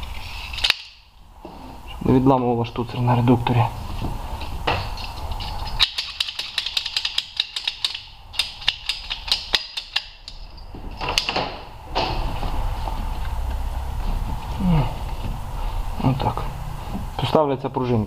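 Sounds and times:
sharp clicks of pliers and clamps: 5.7s - 10.4s.

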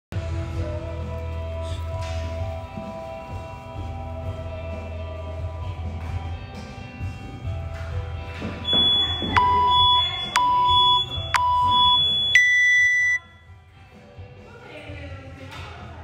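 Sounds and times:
background music: 0.2s - 16.0s
long high-pitched beep: 8.6s - 13.4s
timer short beeps: 8.6s - 13.4s.

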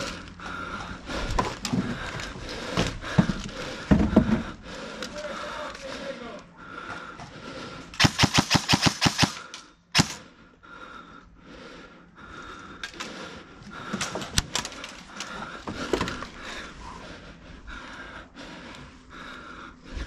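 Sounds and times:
airsoft rifle shots: 8.0s - 10.2s.

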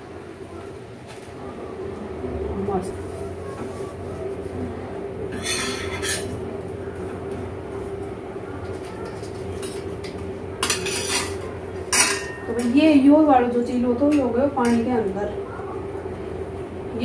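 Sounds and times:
steady low hum: 0.0s - 17.0s
metal utensils clattering on pan: 5.3s - 6.4s, 8.9s - 12.9s, 14.0s - 15.0s.

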